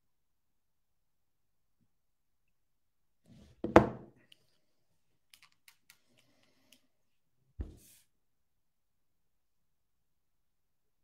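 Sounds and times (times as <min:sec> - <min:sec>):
thump near microphone: 0:07.6 - 0:07.9.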